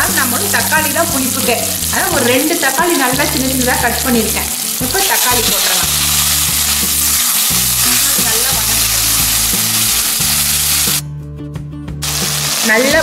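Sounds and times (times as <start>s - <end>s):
vegetables sizzling in hot oil: 0.0s - 11.0s, 12.0s - 13.0s.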